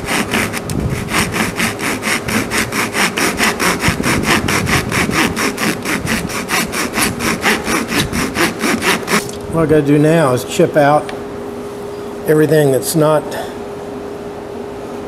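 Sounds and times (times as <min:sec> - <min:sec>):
hand saw rasping through wood: 0:00.0 - 0:09.4.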